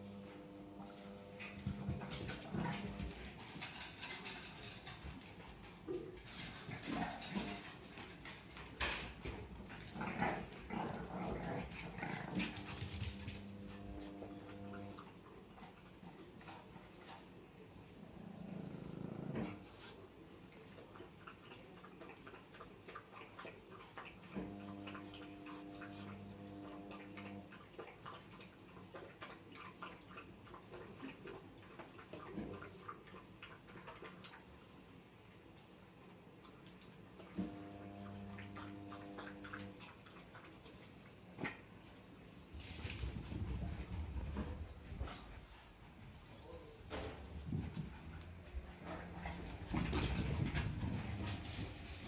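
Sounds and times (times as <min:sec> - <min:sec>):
dogs growling and whining: 0:09.7 - 0:12.8, 0:18.0 - 0:19.7
paws scrabbling on floor: 0:11.1 - 0:13.6, 0:42.6 - 0:52.0
dog lapping water: 0:20.8 - 0:34.8.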